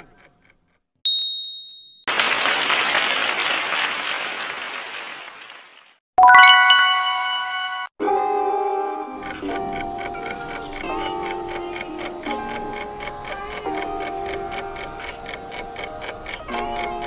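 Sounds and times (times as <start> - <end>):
bright bell chime: 1.1 - 2.1, 6.2 - 7.9
recorded applause: 2.1 - 6.7
music: 6.2 - 17.0.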